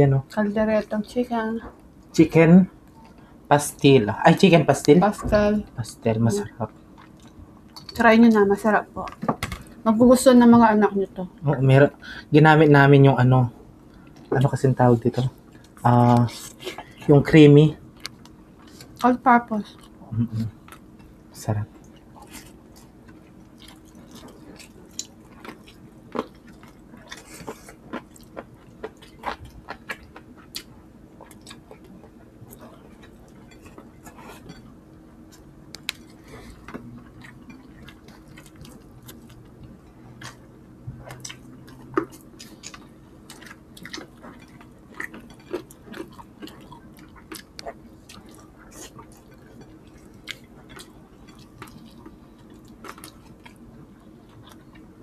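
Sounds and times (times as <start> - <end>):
faint steady hum: 0.0 - 55.0
wet chewing and lip smacks: 21.8 - 34.6, 35.3 - 54.9.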